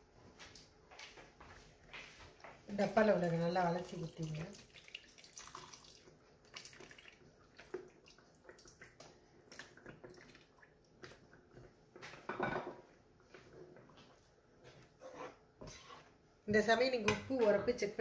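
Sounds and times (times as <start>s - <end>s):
faint drips and splashes: 2.4s - 12.3s
cream dribbling into a pan: 3.8s - 12.1s.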